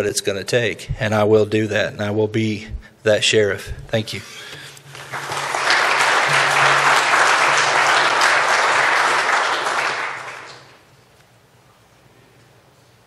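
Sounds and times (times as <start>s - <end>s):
audience applauding: 4.9s - 10.8s.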